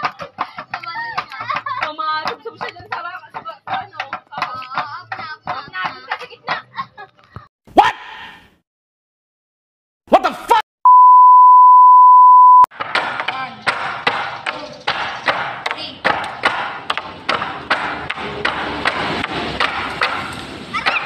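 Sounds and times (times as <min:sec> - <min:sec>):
bamboo poles knocking: 0:00.0 - 0:06.3, 0:12.8 - 0:21.0
steady high beep: 0:10.9 - 0:12.7.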